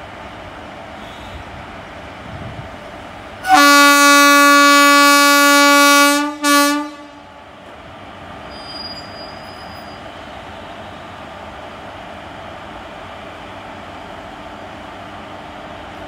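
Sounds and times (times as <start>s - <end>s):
train running noise: 0.0s - 16.0s
locomotive horn blasts: 3.4s - 7.2s.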